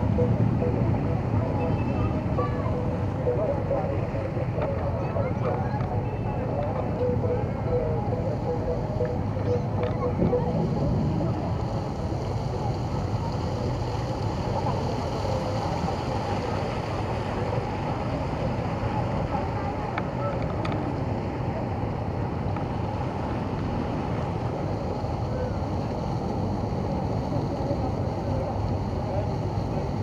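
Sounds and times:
faint murmuring voices: 0.0s - 30.0s
wind rumble on microphone: 0.0s - 30.0s.

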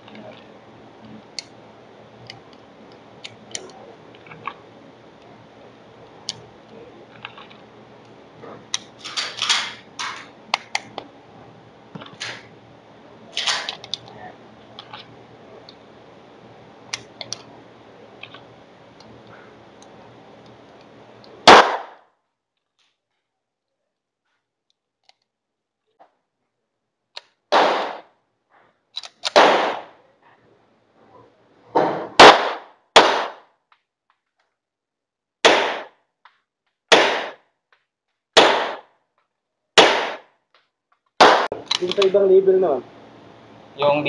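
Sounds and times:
pistol shots echoing: 21.4s - 22.0s, 27.5s - 28.1s, 29.3s - 30.0s, 32.0s - 33.4s, 35.4s - 36.0s, 36.9s - 37.4s, 38.4s - 38.9s, 39.8s - 40.3s, 41.2s - 41.6s
loud gunshot: 21.5s - 22.0s, 27.5s - 28.1s, 29.4s - 29.9s, 31.8s - 33.4s, 35.4s - 35.9s, 36.9s - 37.4s, 38.4s - 38.8s, 39.8s - 40.2s, 41.2s - 41.6s.

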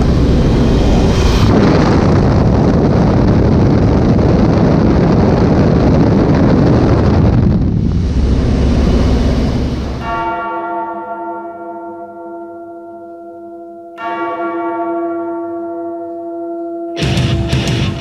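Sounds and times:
loud rock music: 17.0s - 18.0s.

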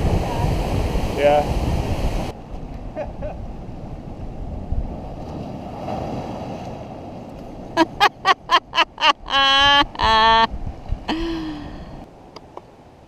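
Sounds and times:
ocean water washing into pool: 0.0s - 2.4s
wind on the microphone: 0.0s - 5.7s, 9.6s - 12.1s
person crying out high-pitched: 8.8s - 10.5s.

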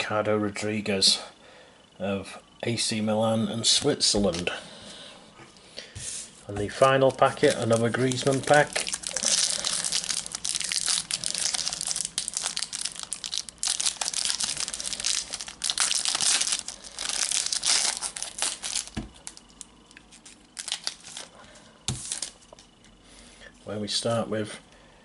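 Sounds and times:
foil packet crinkling and tearing: 6.7s - 22.7s.

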